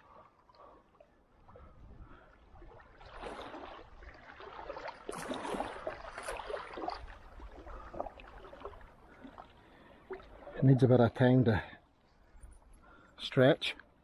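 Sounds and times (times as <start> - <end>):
small waves lapping on rocks: 2.8 - 10.9.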